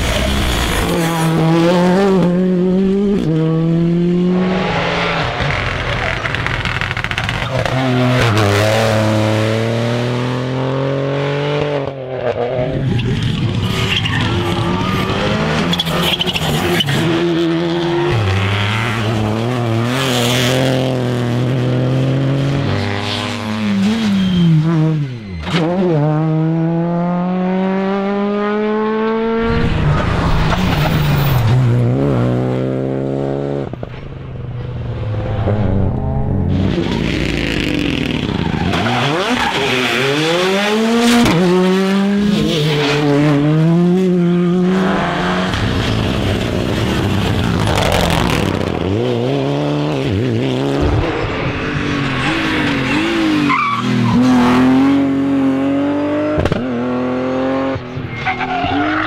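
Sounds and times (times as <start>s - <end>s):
rally car engines revving: 0.0s - 59.0s
tyre squeal: 13.0s - 19.3s, 23.6s - 26.0s, 38.0s - 40.5s, 51.0s - 54.5s, 57.9s - 59.0s.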